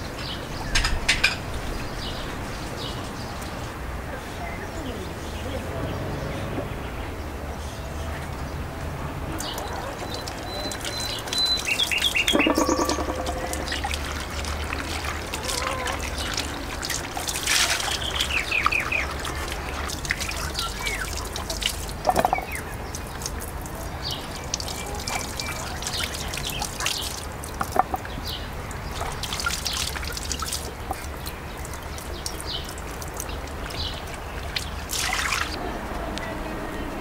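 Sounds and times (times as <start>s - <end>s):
water trickling: 9.4s - 35.6s
bird chirps: 10.0s - 14.3s.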